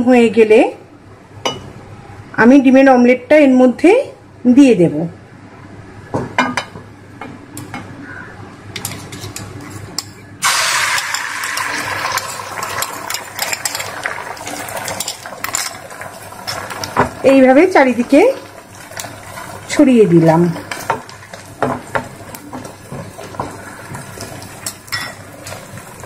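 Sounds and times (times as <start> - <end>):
egg sizzling in hot oil: 10.4 - 26.0
oil crackling in a frying pan: 10.4 - 26.0.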